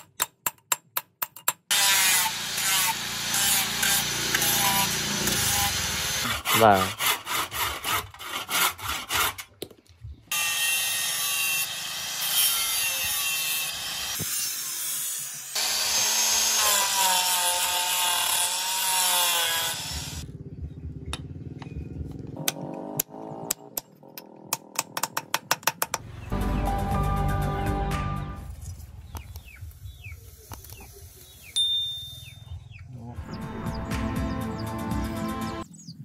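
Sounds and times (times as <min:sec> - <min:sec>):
angle grinder sanding wood: 0:01.7 - 0:09.4, 0:10.3 - 0:20.2.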